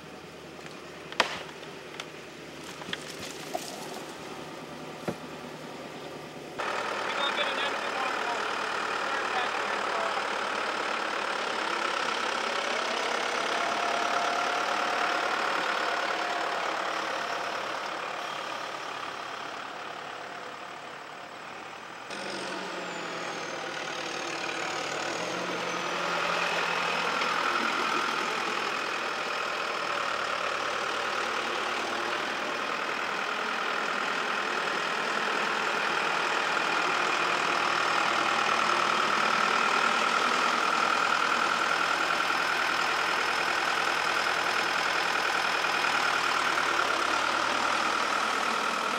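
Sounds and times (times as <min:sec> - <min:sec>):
tractor diesel engine driving: 0:00.0 - 0:48.9.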